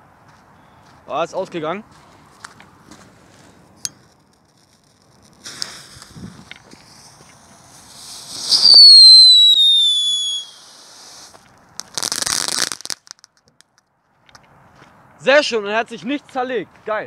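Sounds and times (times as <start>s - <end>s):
firework hissing: 4.2s - 13.2s
firework whistle falling in pitch: 8.2s - 10.9s.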